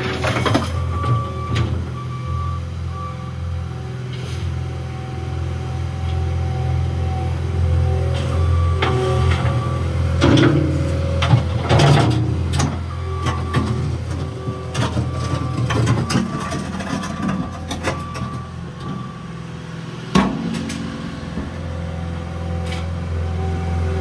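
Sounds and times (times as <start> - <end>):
metal clanks and knocks: 0.0 - 1.8, 10.2 - 19.1, 20.1 - 21.6
diesel engine running: 0.0 - 24.0.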